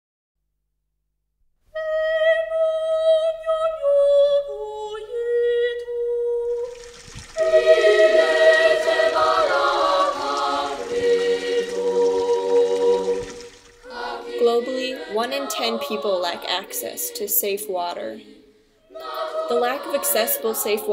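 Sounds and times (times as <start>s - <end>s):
slow held vocal melody: 1.8s - 6.8s, 7.4s - 20.9s
choir singing: 7.4s - 20.9s.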